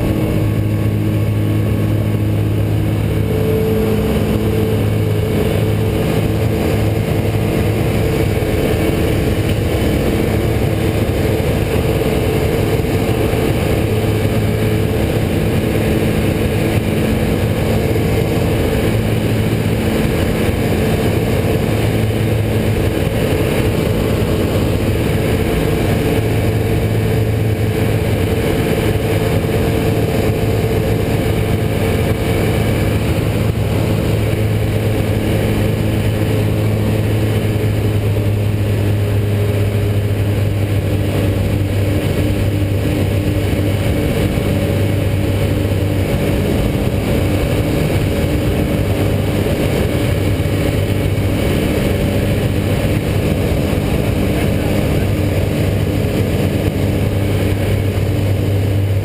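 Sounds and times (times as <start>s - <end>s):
aircraft engine and propeller drone: 0.0s - 59.0s.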